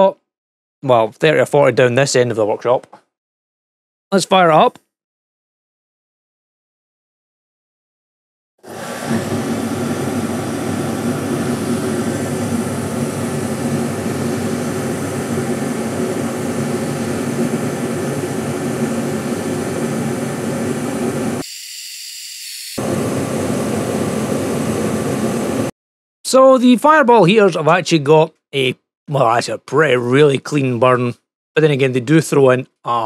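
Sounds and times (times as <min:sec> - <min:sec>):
forced-air heater rushing: 0:08.6 - 0:21.4, 0:22.8 - 0:25.7.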